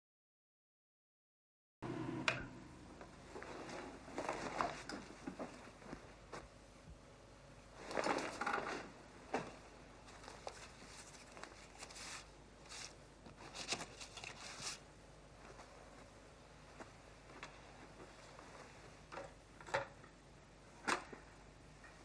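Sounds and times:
record sleeves being flipped: 10.1s - 14.8s.

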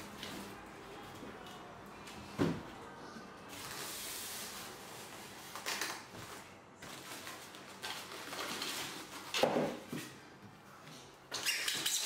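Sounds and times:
plastic wrapping rustling: 3.5s - 9.5s.

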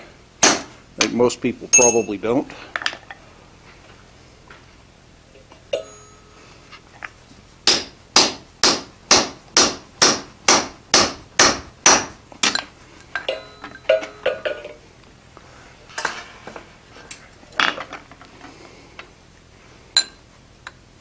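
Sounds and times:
hammer striking punch on metal: 0.4s - 0.7s, 7.7s - 12.6s.

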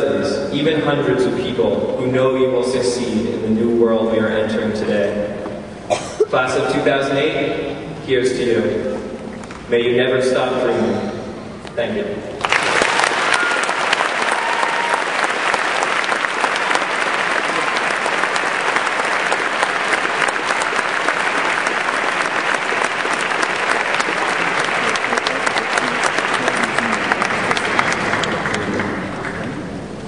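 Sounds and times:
audience applauding: 12.4s - 30.0s.

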